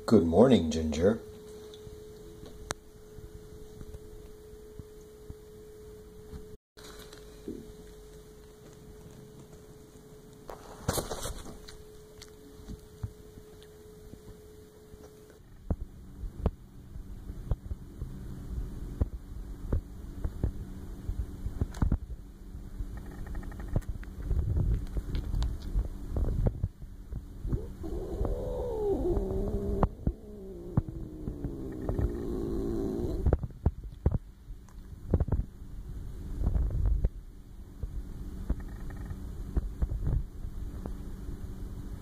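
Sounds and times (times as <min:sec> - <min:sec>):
electrical hum: 0:00.0 - 0:42.0
cat purring: 0:27.5 - 0:33.3.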